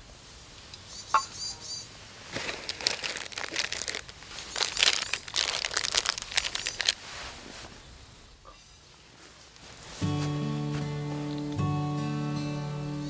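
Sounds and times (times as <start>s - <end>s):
plastic wrapper crinkling: 2.3s - 7.1s.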